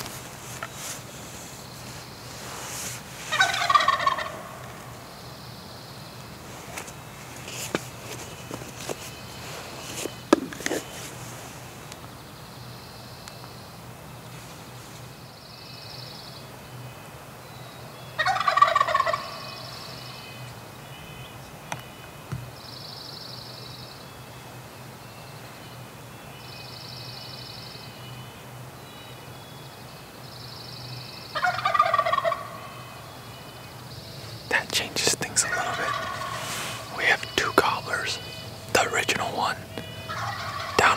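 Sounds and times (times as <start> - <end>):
turkey gobbling: 3.3 - 4.8, 18.2 - 19.4, 31.4 - 32.8, 35.0 - 38.6, 39.4 - 40.9.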